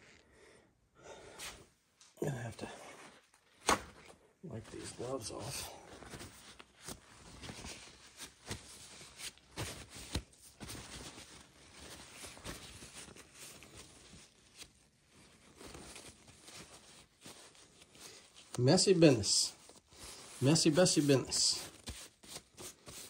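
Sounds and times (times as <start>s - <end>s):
gloved hands rustling: 2.8s - 23.0s.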